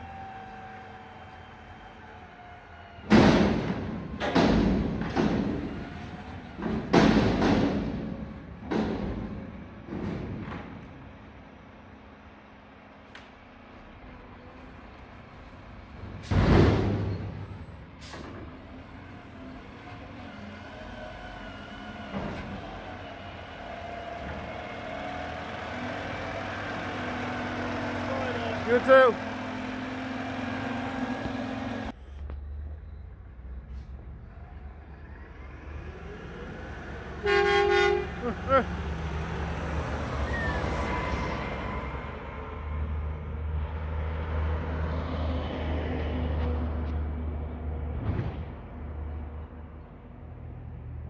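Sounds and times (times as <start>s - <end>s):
garbage truck diesel engine: 0.0s - 51.0s
dumpster banging into truck hopper: 3.0s - 10.8s, 16.1s - 17.5s.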